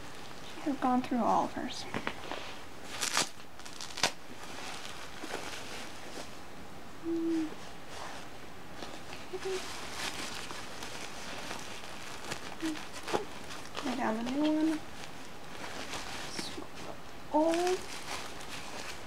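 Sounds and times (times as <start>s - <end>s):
steady background hiss: 0.0s - 19.0s
diaper rustling and crinkling: 1.8s - 6.4s, 7.4s - 19.0s.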